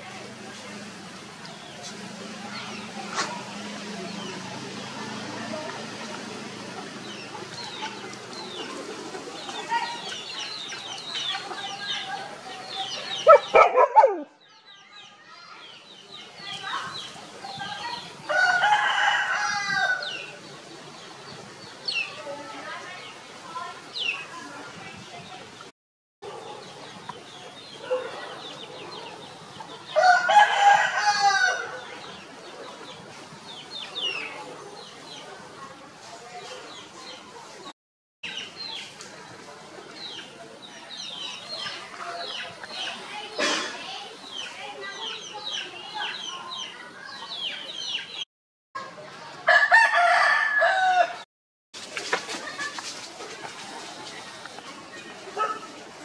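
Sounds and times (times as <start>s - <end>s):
chickens chirping and clucking: 0.2s - 25.7s, 26.3s - 48.2s, 51.8s - 56.0s
rooster crowing: 18.3s - 20.0s, 30.0s - 31.7s, 49.5s - 51.2s
chicks peeping: 44.3s - 48.2s.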